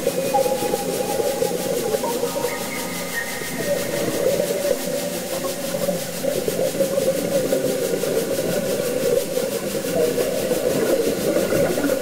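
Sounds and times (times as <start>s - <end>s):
underwater churning rumble: 5.8s - 12.0s.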